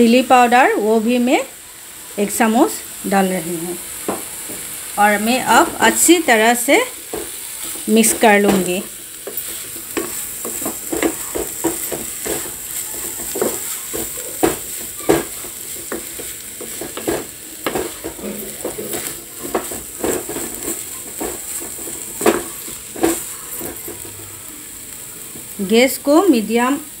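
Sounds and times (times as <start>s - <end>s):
meat sizzling: 0.0s - 27.0s
spatula scraping frying pan: 3.9s - 24.3s.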